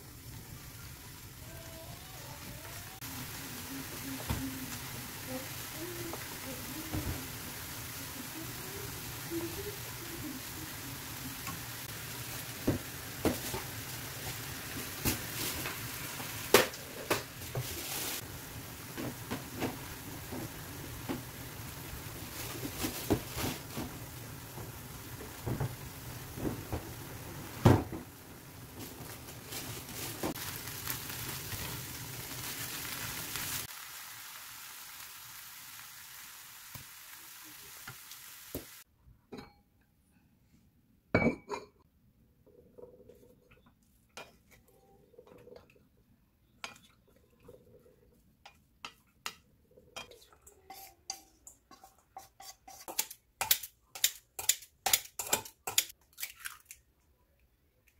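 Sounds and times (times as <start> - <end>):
greens sizzling in a frying pan: 0.0 - 38.9
spatula scraping and tapping: 48.4 - 56.0.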